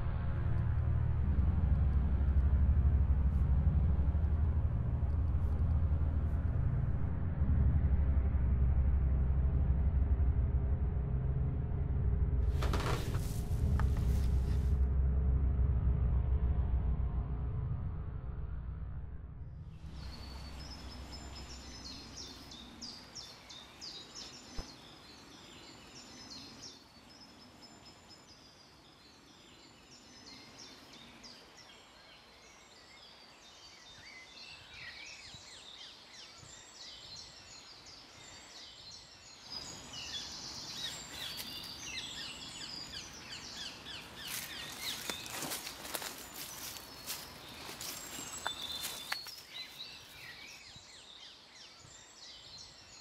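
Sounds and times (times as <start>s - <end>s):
low rumble of music: 0.0s - 33.5s, 35.0s - 51.1s
small birds chirping and singing: 19.8s - 53.0s
footsteps on dry leaves: 40.8s - 42.2s, 44.2s - 50.6s.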